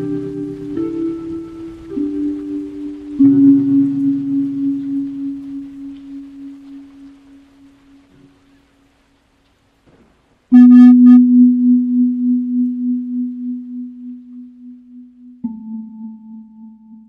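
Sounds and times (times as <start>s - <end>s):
brief buzzy high tone: 10.5s - 11.5s
low ringing tone struck: 10.5s - 17.0s.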